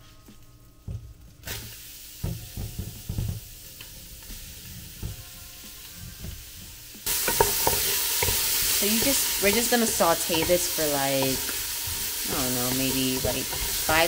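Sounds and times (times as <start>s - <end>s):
vegetables sizzling in oil: 1.4s - 14.0s
utensil knocking while stirring: 7.2s - 14.0s.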